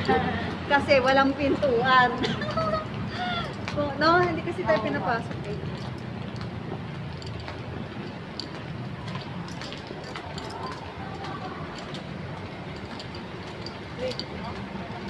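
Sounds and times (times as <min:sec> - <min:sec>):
footsteps on pavement: 0:00.0 - 0:15.0
street noise: 0:00.0 - 0:15.0
faint voices: 0:09.9 - 0:13.2.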